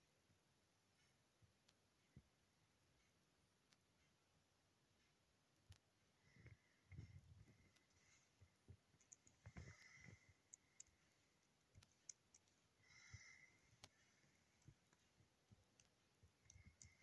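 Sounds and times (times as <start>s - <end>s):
laptop keys clicking: 14.6s - 17.0s.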